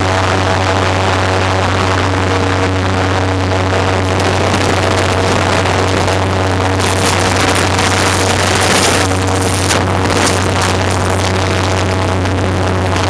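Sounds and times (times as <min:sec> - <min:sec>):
airboat engine and propeller drone: 0:00.0 - 0:13.0
wind buffeting microphone: 0:04.1 - 0:12.4.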